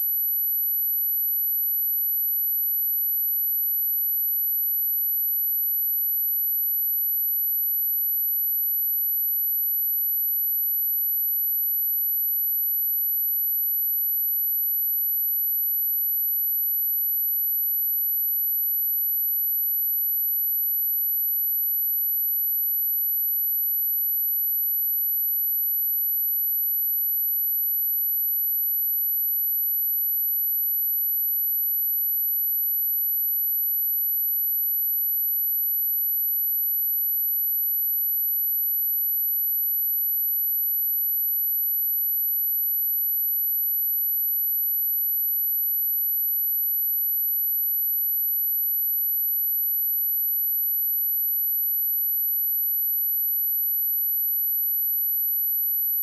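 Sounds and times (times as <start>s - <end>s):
high-pitched sine test tone: 26.6s - 56.0s.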